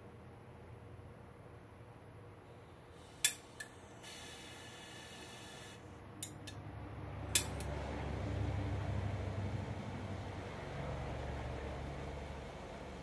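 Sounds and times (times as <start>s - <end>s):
gas hiss: 2.9s - 5.9s
igniter clicks: 7.3s - 7.7s.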